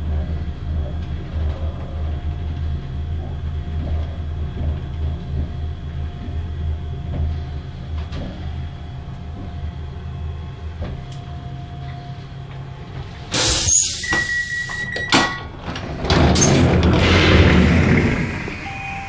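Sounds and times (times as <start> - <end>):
train rumbling at standstill: 0.0 - 19.0
loud platform noise: 12.4 - 19.0
hiss of air: 13.3 - 14.1
sliding door opening: 13.3 - 19.0
short steady beep: 14.0 - 15.2, 18.6 - 19.0.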